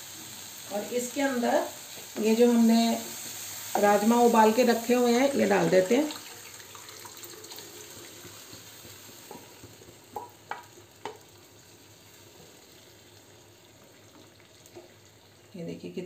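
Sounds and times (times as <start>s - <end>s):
pan sizzling softly: 0.0s - 15.8s
beans and water pouring: 6.1s - 8.2s.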